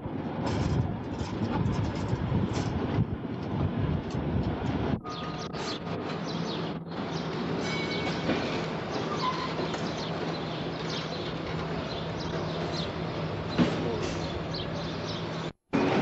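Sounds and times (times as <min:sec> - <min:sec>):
bird chirps: 0:05.0 - 0:15.5.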